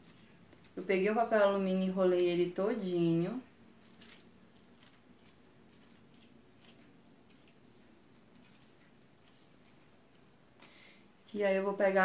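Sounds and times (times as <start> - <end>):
aluminium foil crinkling: 0.0 - 12.0.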